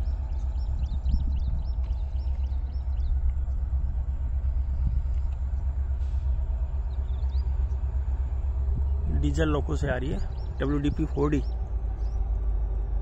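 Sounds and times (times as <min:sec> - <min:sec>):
bird chirping: 0:00.0 - 0:04.0, 0:08.9 - 0:12.2
diesel train rumbling: 0:00.0 - 0:13.0.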